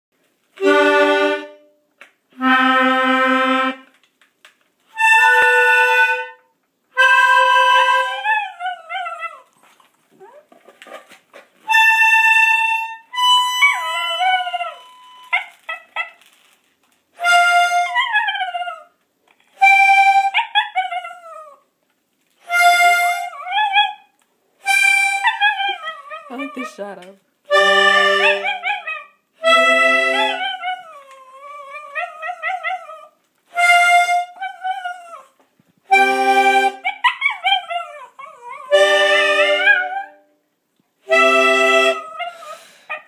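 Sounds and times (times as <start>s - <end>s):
accordion chords: 0.6s - 1.8s, 2.4s - 4.0s, 5.0s - 8.2s, 19.6s - 20.3s, 22.5s - 23.3s, 24.6s - 25.2s, 26.6s - 28.5s, 29.4s - 30.4s, 33.5s - 34.4s, 35.9s - 36.8s, 38.7s - 39.8s, 41.0s - 42.1s.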